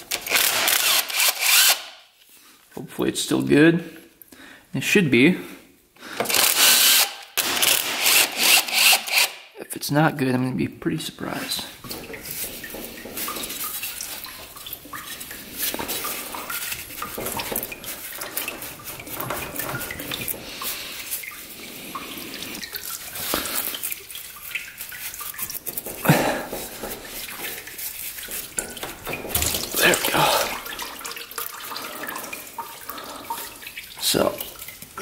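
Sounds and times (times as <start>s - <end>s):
liquid dripping and trickling: 11.6s - 35.0s
metal clunk: 28.6s - 29.8s.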